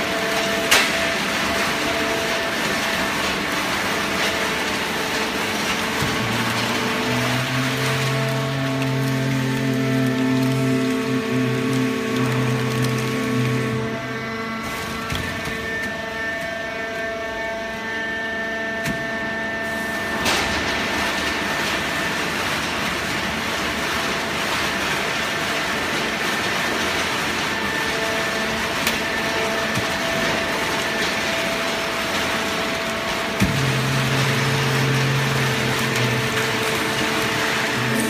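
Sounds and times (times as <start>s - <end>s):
machine hum with whining tones: 0.0s - 38.0s.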